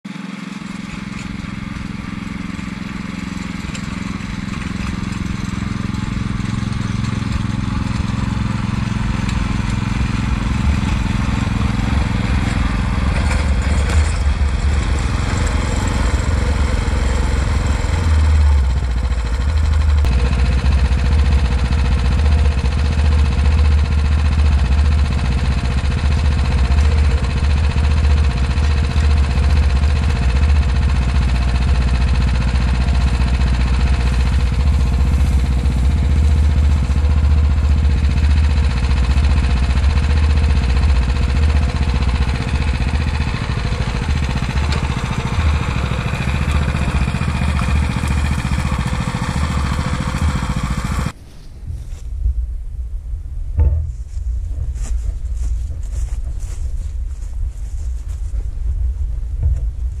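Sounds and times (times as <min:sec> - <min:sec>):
cultivator petrol engine running: 0:00.0 - 0:51.2, 0:53.6 - 1:00.0.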